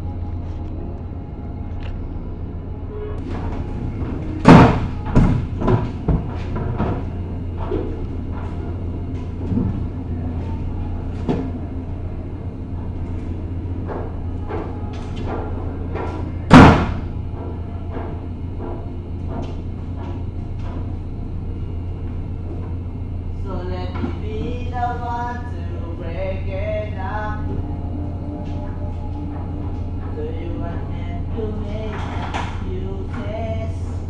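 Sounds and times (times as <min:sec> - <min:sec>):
steady low hum: 0:00.0 - 0:34.0
bangs on steel ramp: 0:03.2 - 0:08.0, 0:13.8 - 0:20.8.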